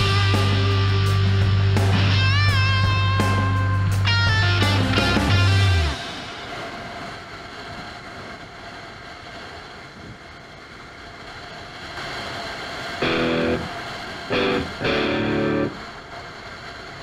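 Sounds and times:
distorted electric guitar music: 0.0 - 6.4, 13.0 - 16.0
rushing wind and road noise: 0.0 - 17.0.

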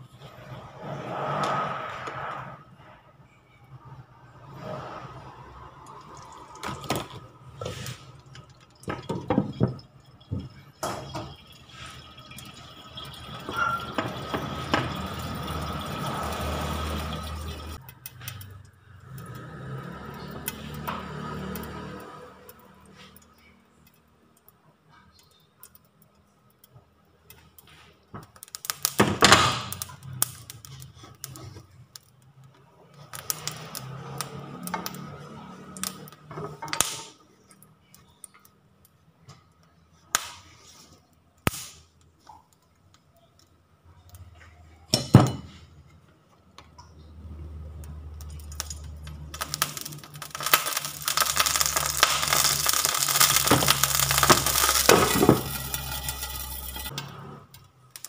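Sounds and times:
loud sizzle in hot pan: 11.3 - 17.9, 19.0 - 23.2, 33.1 - 36.1, 48.2 - 56.9.

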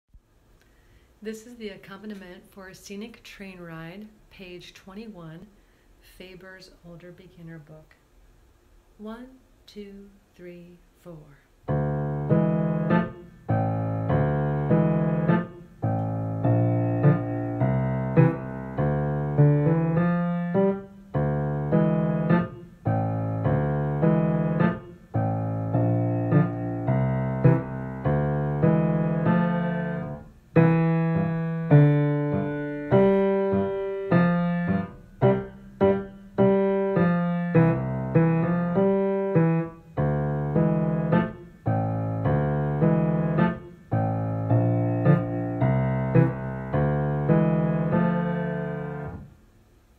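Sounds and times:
piano chords: 11.7 - 49.4.

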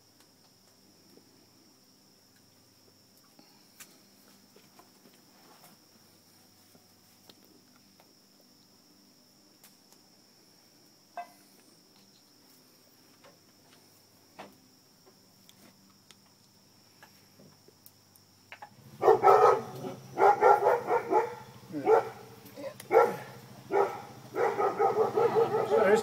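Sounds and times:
crickets droning: 0.0 - 26.0
dog barking: 19.0 - 22.3, 22.9 - 26.0.

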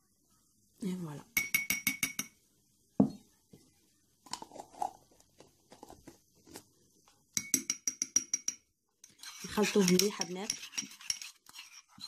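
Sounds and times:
spoon clinking against bowl: 1.4 - 2.4, 7.4 - 11.9
spoon scraping in ceramic bowl: 7.4 - 12.0.

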